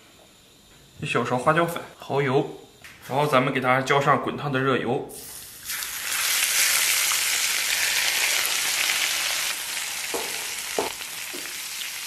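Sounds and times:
hot oil sizzling: 0:05.2 - 0:12.0.

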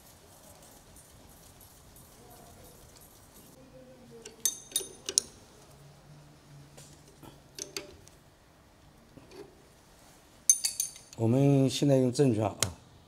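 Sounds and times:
metal clinks ringing: 0:04.2 - 0:05.4, 0:10.5 - 0:11.2.

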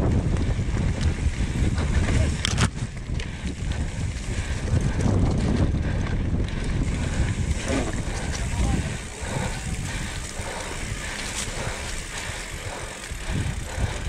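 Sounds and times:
mountain bike rumbling and rattling: 0:00.0 - 0:14.0
wind noise on microphone: 0:00.0 - 0:14.0.

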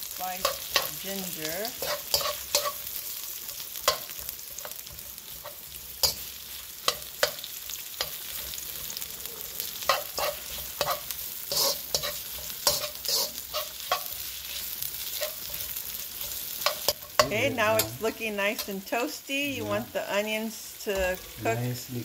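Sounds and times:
onion sizzling in hot oil: 0:00.0 - 0:22.0
spatula scraping and knocking pan: 0:00.4 - 0:03.0, 0:09.7 - 0:18.0.

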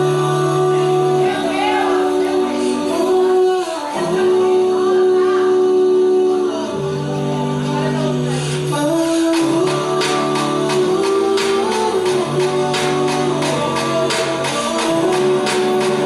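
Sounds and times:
pop song with sung notes: 0:00.0 - 0:16.0
steady percussive beat: 0:09.3 - 0:16.0.

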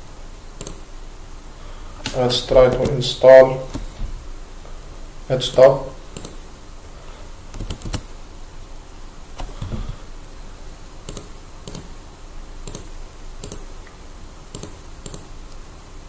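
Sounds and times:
soft low thump: 0:03.8 - 0:04.4
keyboard key clicks: 0:11.1 - 0:11.9.

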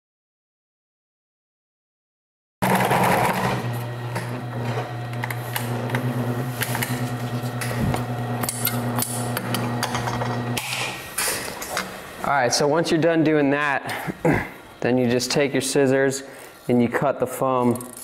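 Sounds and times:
sewing machine motor hum: 0:02.6 - 0:11.0.

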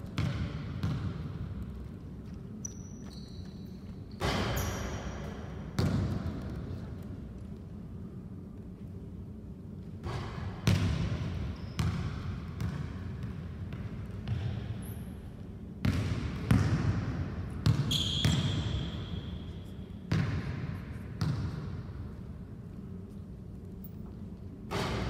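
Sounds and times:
basketball bouncing on hardwood floor: 0:00.2 - 0:01.3, 0:05.8 - 0:06.4, 0:11.8 - 0:14.6, 0:15.8 - 0:17.0.

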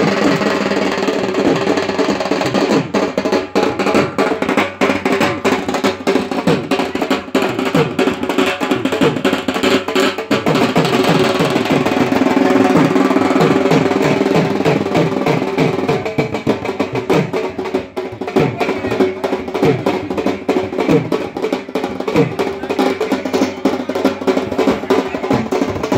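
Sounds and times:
drums beaten fast: 0:00.0 - 0:25.9.

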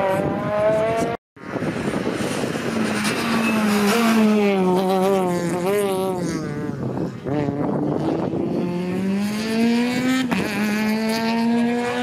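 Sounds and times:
rally car passing close by: 0:00.0 - 0:06.5
rally car engine accelerating: 0:07.3 - 0:12.0.

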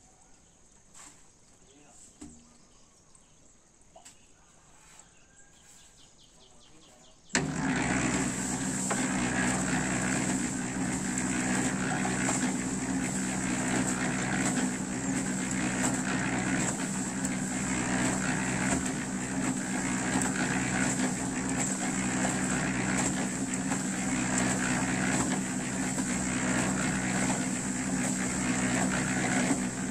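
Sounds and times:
concrete mixer motor drone: 0:07.3 - 0:29.9.

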